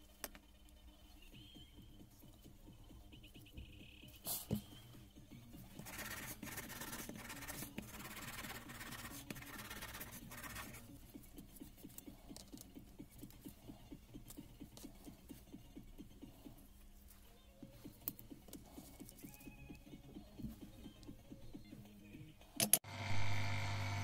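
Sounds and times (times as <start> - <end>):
scratchy rubbing: 5.7 - 10.9.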